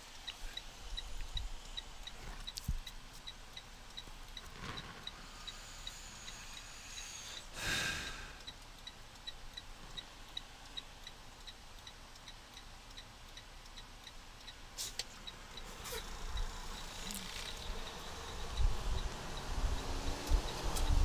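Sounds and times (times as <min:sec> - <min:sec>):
turn signal ticking: 0:00.0 - 0:21.0.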